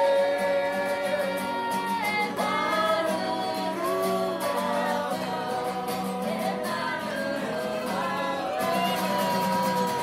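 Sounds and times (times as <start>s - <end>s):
strummed acoustic guitar: 0.0s - 10.0s
women singing: 0.0s - 10.0s.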